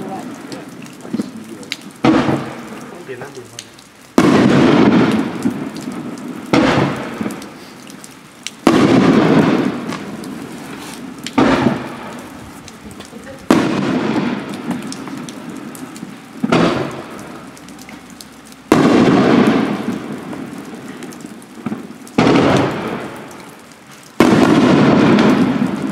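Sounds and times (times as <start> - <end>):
crackling strobe firework tails: 0.0 - 25.9
fireworks booming: 0.0 - 25.9.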